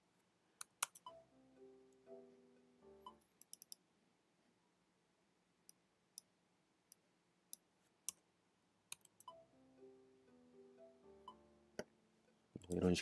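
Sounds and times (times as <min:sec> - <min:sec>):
computer mouse clicking: 0:00.6 - 0:01.1, 0:03.2 - 0:03.8, 0:08.9 - 0:09.3
piano notes: 0:01.1 - 0:03.2, 0:09.3 - 0:13.0.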